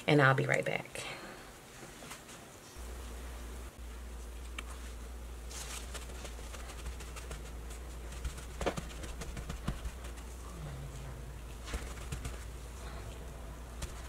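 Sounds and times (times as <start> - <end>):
low hum: 2.8 - 14.0
paper towel rustling: 4.2 - 14.0.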